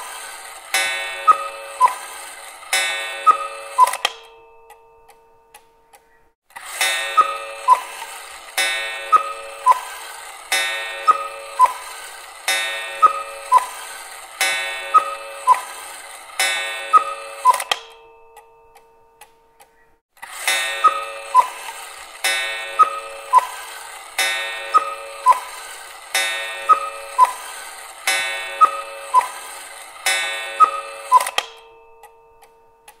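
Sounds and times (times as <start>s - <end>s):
cuckoo clock calls: 0.0s - 33.0s
faint clock ticking: 0.0s - 33.0s.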